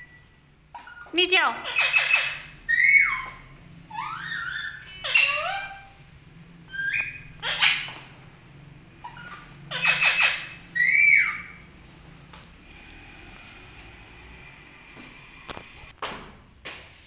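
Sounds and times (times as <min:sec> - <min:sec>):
parakeet screeching: 0:00.7 - 0:06.0, 0:06.7 - 0:08.1, 0:09.0 - 0:11.7.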